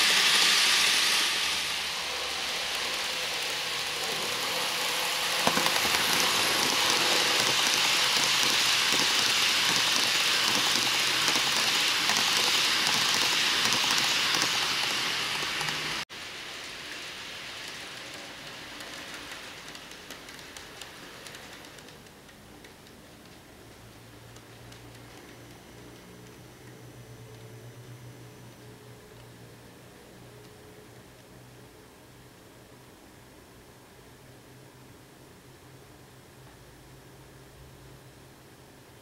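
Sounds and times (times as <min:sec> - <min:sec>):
model train wheels rattling: 0:01.9 - 0:23.5.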